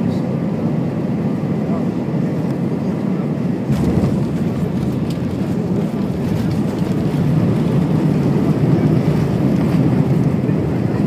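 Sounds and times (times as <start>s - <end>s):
jet engines rumbling: 0.0s - 11.0s
wheels on runway: 3.7s - 10.5s.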